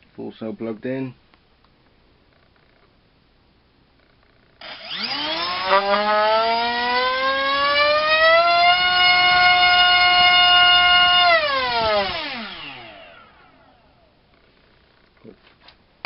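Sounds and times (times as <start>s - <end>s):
drone motor whine: 4.6s - 14.1s.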